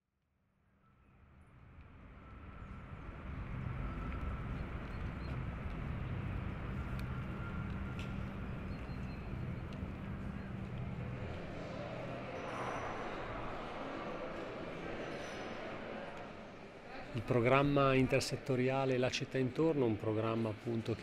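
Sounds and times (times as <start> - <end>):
distant traffic rumble: 2.2 - 13.5.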